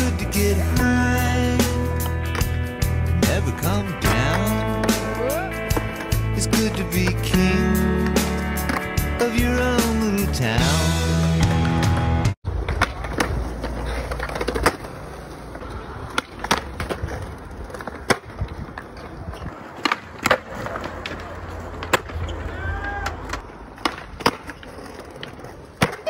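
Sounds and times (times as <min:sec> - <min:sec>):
skateboard wheels rolling on concrete: 0:00.0 - 0:26.0
skateboard clacking: 0:11.9 - 0:26.0.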